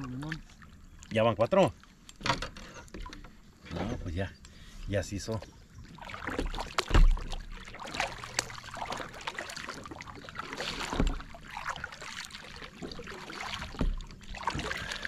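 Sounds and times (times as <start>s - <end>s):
kayak paddle splashing in water: 5.9s - 15.0s.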